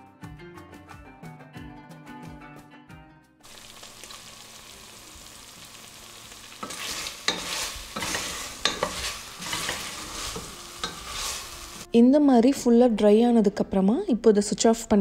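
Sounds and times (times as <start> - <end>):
meat sizzling in a pot: 3.4 - 11.9
wooden spatula scraping a pot: 6.6 - 11.9.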